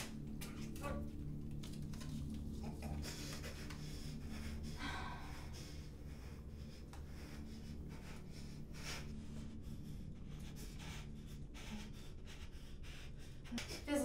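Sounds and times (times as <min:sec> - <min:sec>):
tape rustling and rubbing: 0:00.0 - 0:03.8
steady low drone: 0:00.0 - 0:14.0.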